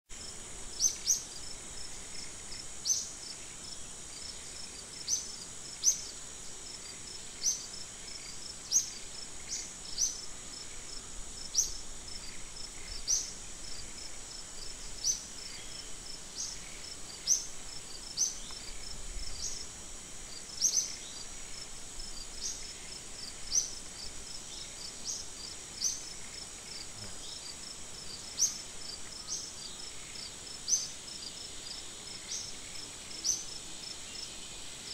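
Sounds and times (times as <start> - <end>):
insects droning high-pitched: 0.2 - 34.9.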